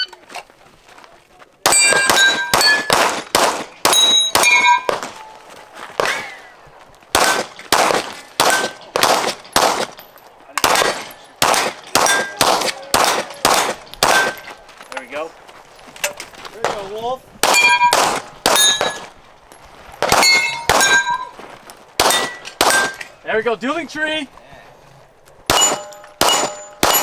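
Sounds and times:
rapid gunshots: 1.7s - 5.1s, 7.1s - 10.0s, 10.6s - 14.4s, 17.4s - 18.6s
steel plate target clanging: 3.9s - 5.0s, 10.8s - 12.4s, 17.5s - 19.1s, 20.1s - 21.4s, 25.5s - 27.0s.

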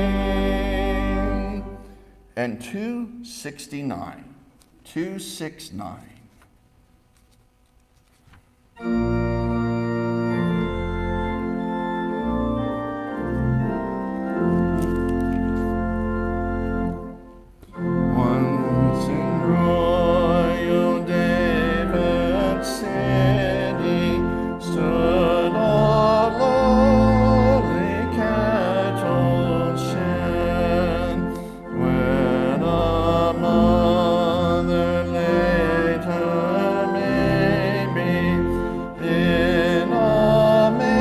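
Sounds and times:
people singing a hymn: 0.0s - 1.9s, 17.9s - 41.0s
church organ chords: 0.0s - 4.2s, 8.7s - 41.0s.

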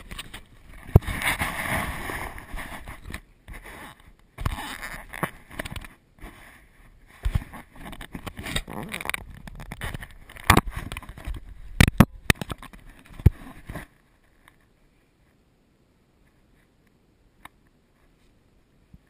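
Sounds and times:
microphone handling noise: 0.0s - 14.0s.

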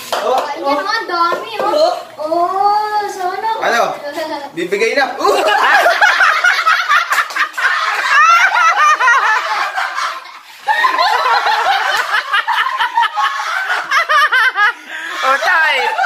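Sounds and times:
people laughing and snickering: 5.2s - 16.0s.

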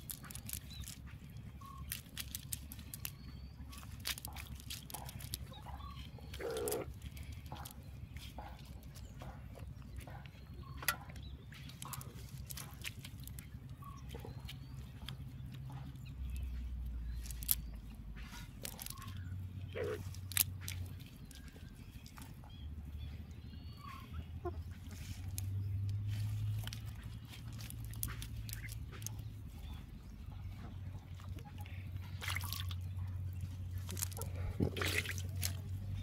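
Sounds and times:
wet fishing net rustling: 0.0s - 5.6s, 20.0s - 22.2s, 24.8s - 29.1s, 32.1s - 32.8s, 33.7s - 36.0s
steady low rumble: 0.0s - 36.0s.

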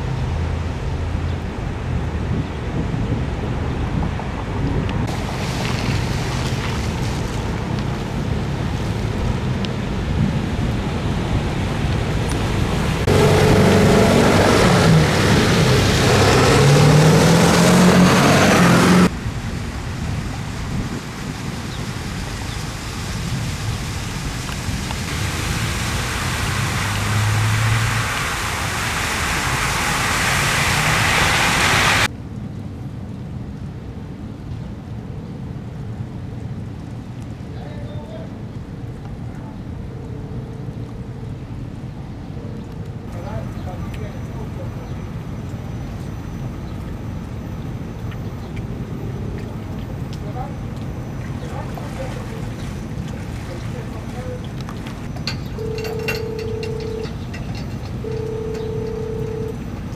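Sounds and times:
road noise: 0.0s - 59.9s
wind: 0.0s - 59.9s
tyres splashing through water: 5.0s - 19.7s, 20.4s - 32.1s, 46.5s - 59.9s
truck engine accelerating: 12.2s - 19.1s, 26.2s - 32.1s.

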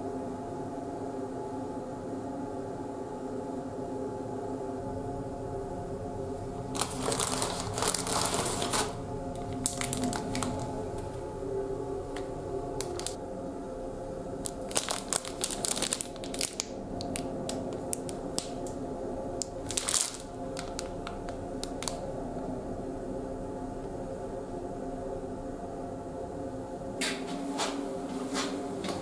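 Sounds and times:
plastic wrapping crinkling: 6.7s - 11.1s, 12.8s - 13.2s, 14.4s - 18.7s, 19.4s - 22.0s.

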